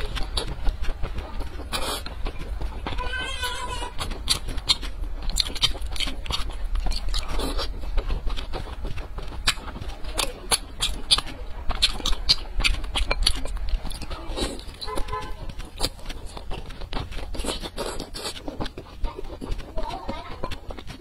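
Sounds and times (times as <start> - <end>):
low steady hum: 0.0 - 21.0
person chewing food: 0.0 - 21.0.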